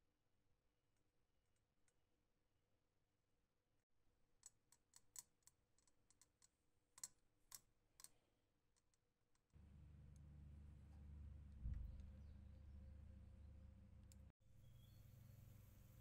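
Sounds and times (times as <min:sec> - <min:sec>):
low hum: 0:09.6 - 0:16.0.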